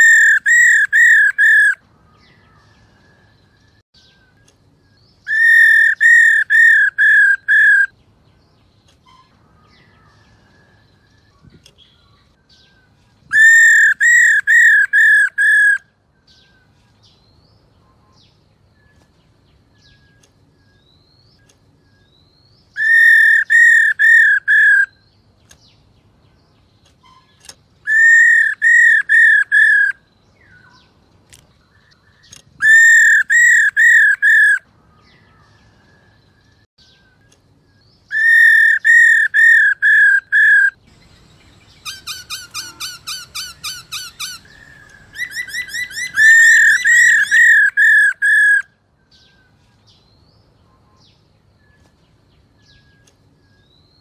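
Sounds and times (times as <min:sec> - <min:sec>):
bird whistled calls: 0:00.0 - 0:01.8, 0:05.2 - 0:07.9, 0:13.3 - 0:15.8, 0:22.7 - 0:25.0, 0:27.0 - 0:30.8, 0:32.6 - 0:34.6, 0:38.1 - 0:48.7.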